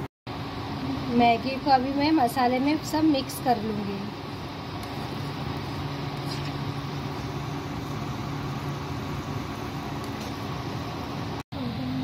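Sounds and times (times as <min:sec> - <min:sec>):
mechanical hum with hiss: 0:00.0 - 0:12.0.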